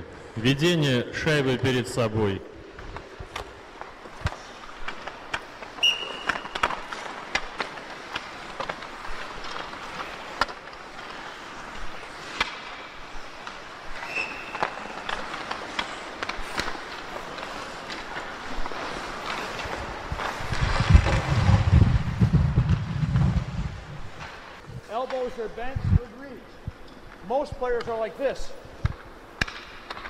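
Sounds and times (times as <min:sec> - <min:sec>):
skates scraping on ice: 0:02.6 - 0:26.0
pucks clacking on sticks: 0:02.8 - 0:21.3, 0:26.8 - 0:28.1, 0:28.8 - 0:30.0.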